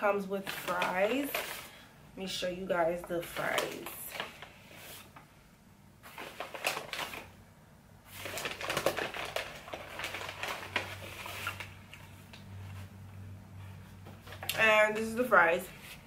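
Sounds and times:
paper bag rustling: 0.1 - 1.8, 6.0 - 7.4, 8.1 - 11.9.

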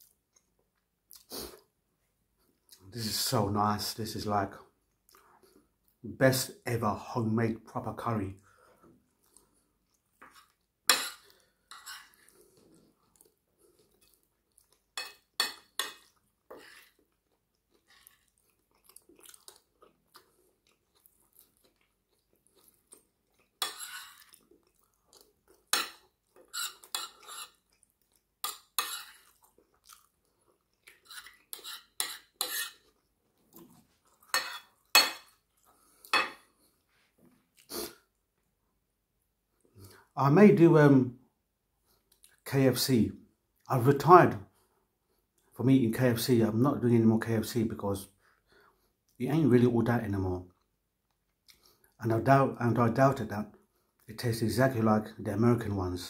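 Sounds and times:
quiet chewing: 0.0 - 1.8, 4.6 - 6.0, 8.5 - 38.7, 41.8 - 42.4, 50.5 - 52.0.

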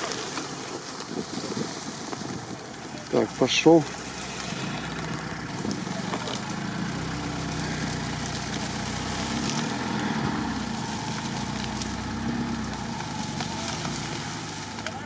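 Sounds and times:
car engine running at low revs: 0.0 - 15.0.

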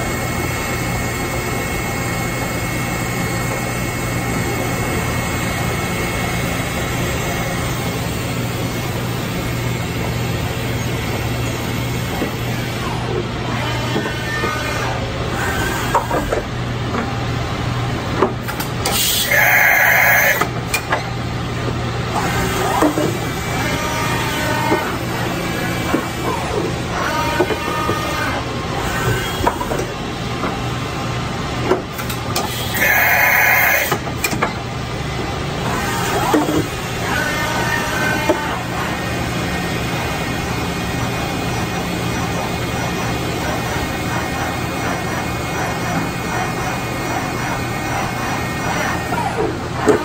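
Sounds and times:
milling machine hum: 0.0 - 50.0
high-pitched screech: 32.7 - 34.0.

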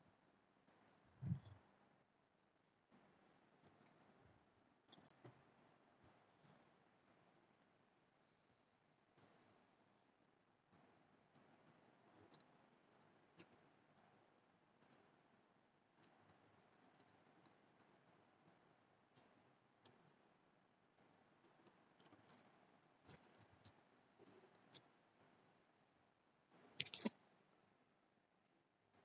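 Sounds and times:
faint room hiss: 0.0 - 29.0
small sharp clicks and ticks: 4.8 - 6.6, 10.7 - 14.1, 14.8 - 15.1, 15.9 - 18.6, 19.2 - 20.0, 20.9 - 25.3, 26.6 - 27.2.

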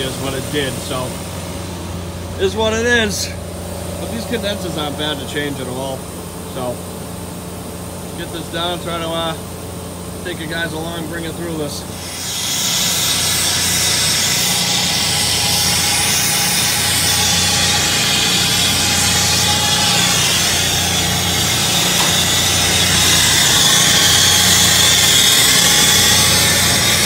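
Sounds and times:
machinery hum: 0.0 - 27.0
loud broad hiss: 11.6 - 27.0.

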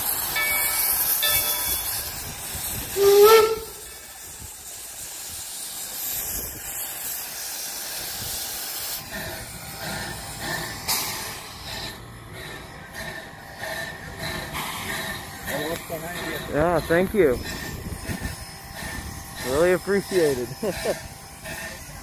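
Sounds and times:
steam locomotive hissing: 0.0 - 22.0
steam whistle toot: 2.9 - 3.9.

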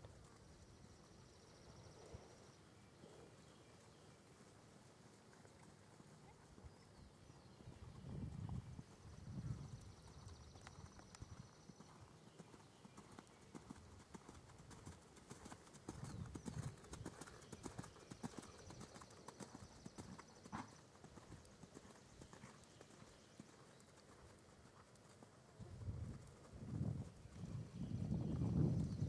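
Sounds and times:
pony hoofbeats on sand: 13.2 - 29.0.

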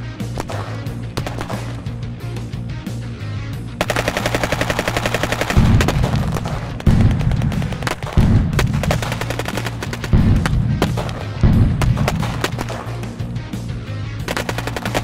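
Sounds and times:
machine-gun fire: 0.4 - 2.0, 3.8 - 13.1, 14.3 - 15.0
heavy low booms: 5.6 - 9.1, 10.1 - 12.4.

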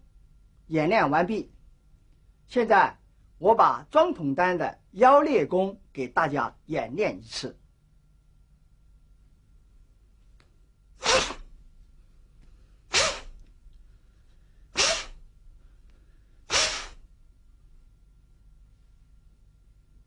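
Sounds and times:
sharp forceful exhalations: 11.0 - 11.5, 12.9 - 13.4, 14.7 - 15.2, 16.4 - 17.1.

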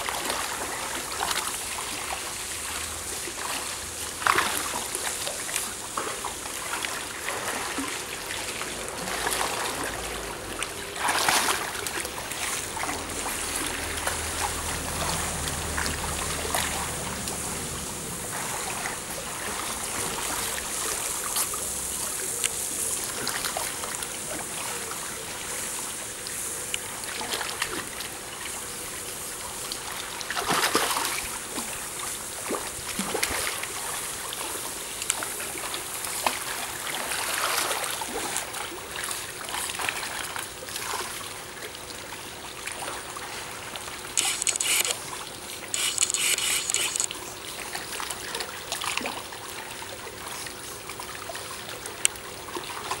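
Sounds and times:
water splashing and trickling: 0.0 - 53.0.

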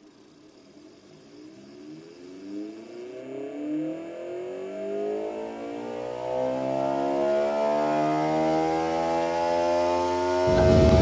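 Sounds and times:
pulse motor whine: 10.2 - 11.0.

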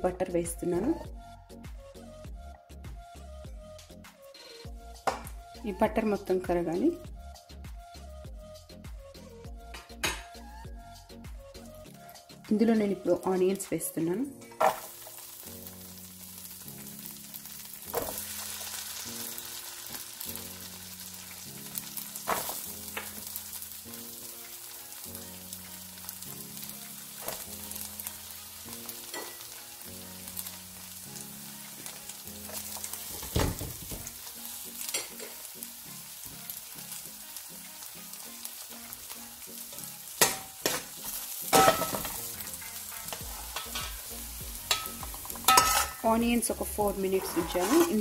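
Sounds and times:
quiet background music: 0.0 - 48.0
onions sizzling in a pan: 14.5 - 48.0
spatula scraping a pan: 41.6 - 44.1, 44.7 - 46.1, 46.8 - 48.0.

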